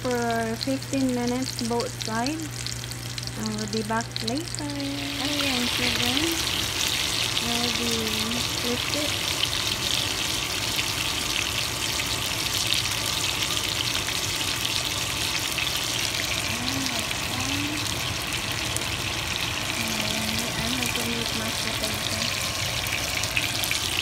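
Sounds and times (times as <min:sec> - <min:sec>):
steaks sizzling in a frying pan: 0:00.0 - 0:24.0.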